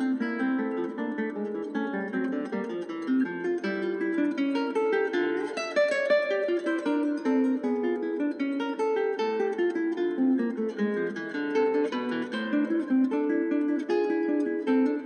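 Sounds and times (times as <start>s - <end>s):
acoustic guitar picking melody: 0.0s - 15.0s.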